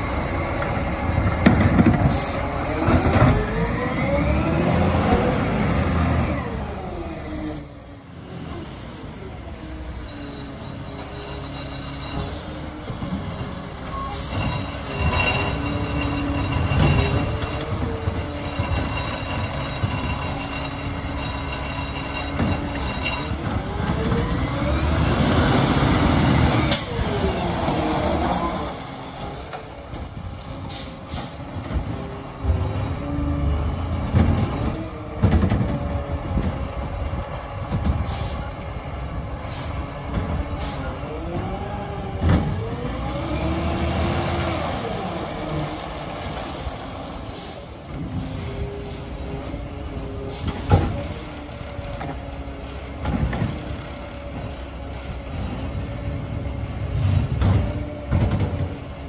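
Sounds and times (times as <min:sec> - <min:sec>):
garbage truck engine: 0:00.0 - 0:59.0.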